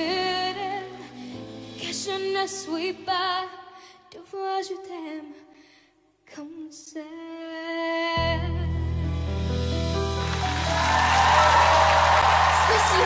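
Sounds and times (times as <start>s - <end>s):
girl singing into a microphone: 0.0s - 1.2s, 1.8s - 8.7s
backing music: 8.7s - 13.0s.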